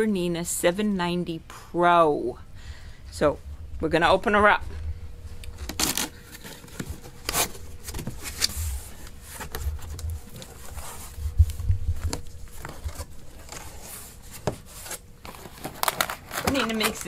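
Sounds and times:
cardboard flaps rubbing and scraping: 5.6 - 16.9.

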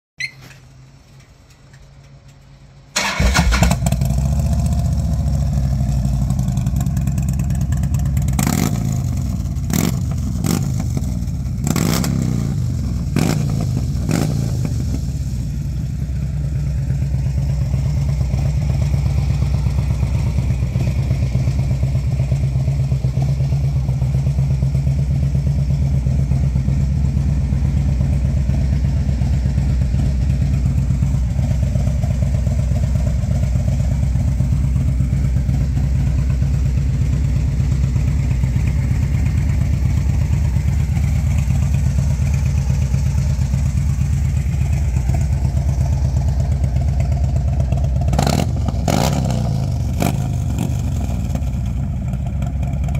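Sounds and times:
motorcycle engine idling: 1.4 - 52.9
motorcycle engine revving: 3.0 - 15.8, 29.1 - 52.9.

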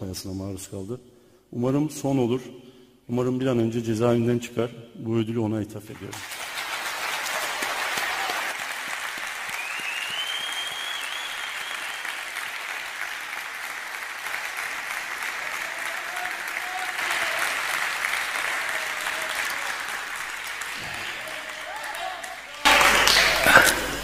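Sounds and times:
audience applauding: 6.1 - 24.0.

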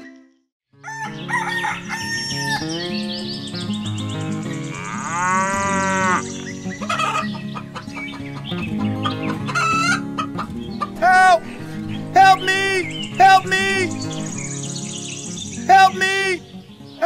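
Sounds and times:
rooster crowing: 0.8 - 2.8, 4.7 - 7.4
hens clucking: 4.6 - 14.6.

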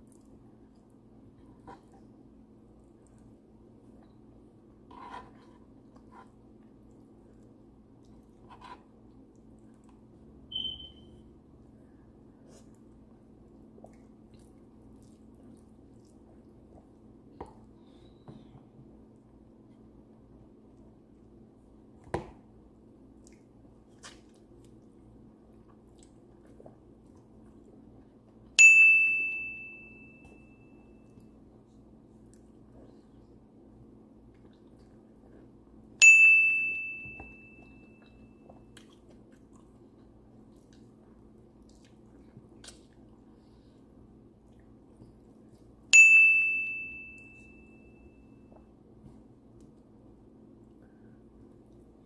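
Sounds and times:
faint steady hum: 0.0 - 52.0
short high squeak: 10.5 - 11.1
bright bell ding: 28.6 - 30.7, 36.0 - 37.9, 46.0 - 48.0.

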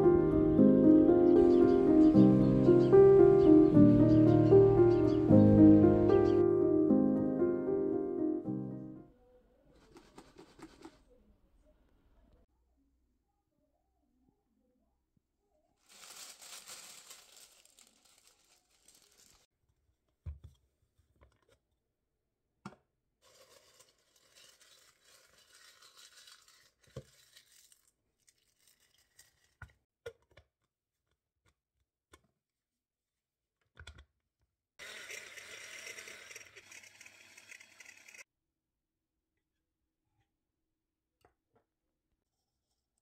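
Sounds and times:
dry leaves crinkling and tearing: 15.8 - 19.5, 23.3 - 29.5
electric chopper grinding leaves: 34.8 - 38.2.

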